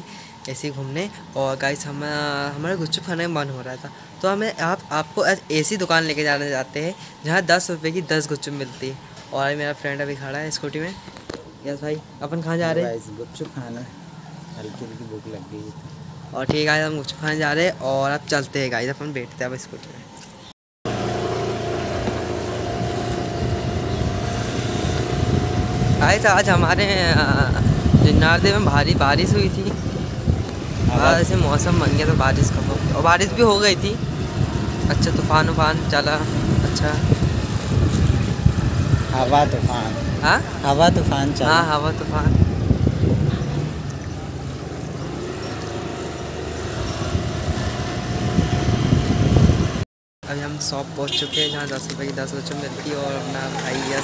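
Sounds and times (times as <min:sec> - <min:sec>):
road noise: 0:00.0 - 0:54.0
scooter engine whining: 0:20.9 - 0:49.8
wind buffeting microphone: 0:22.7 - 0:45.2, 0:46.4 - 0:49.8.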